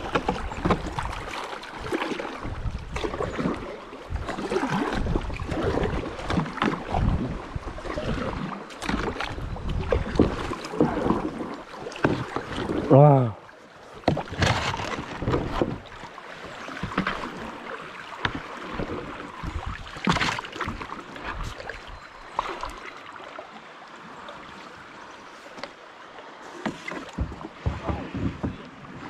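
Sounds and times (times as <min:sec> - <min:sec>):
paddle knocks: 0:00.0 - 0:03.6, 0:08.2 - 0:13.0, 0:14.0 - 0:21.8, 0:26.5 - 0:29.0
paddle splashing in water: 0:00.0 - 0:29.0.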